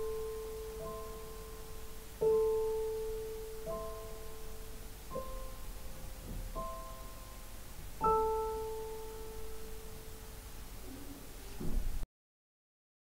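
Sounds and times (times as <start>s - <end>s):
bell-like electronic keyboard notes: 0.0s - 5.7s.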